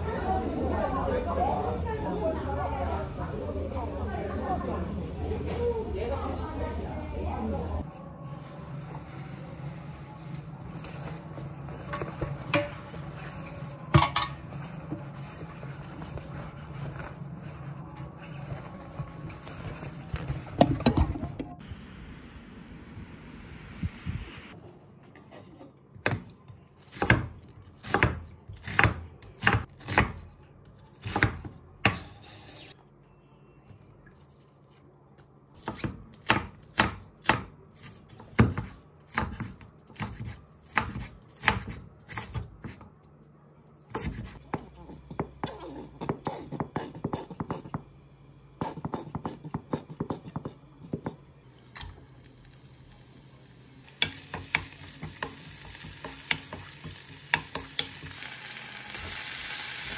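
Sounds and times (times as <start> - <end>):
onion sizzling in hot oil: 51.8 - 59.9.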